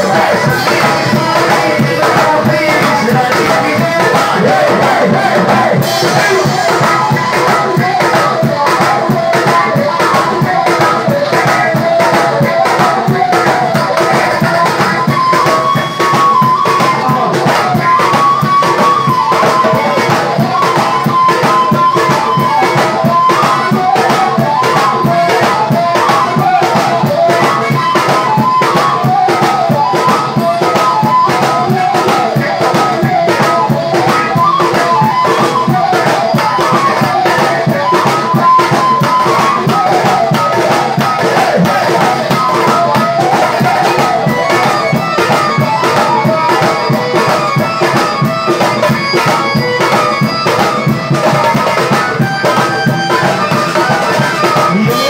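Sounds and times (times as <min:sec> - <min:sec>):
drums and hand percussion: 0:00.0 - 0:55.0
man singing into microphone: 0:00.0 - 0:55.0.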